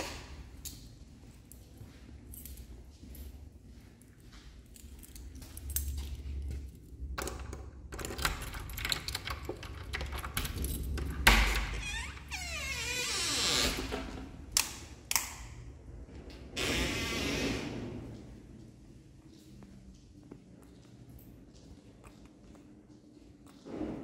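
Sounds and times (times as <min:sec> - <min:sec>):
keys jangling in door lock: 0:07.2 - 0:12.1
door squeaking open: 0:11.3 - 0:14.2, 0:16.6 - 0:17.7.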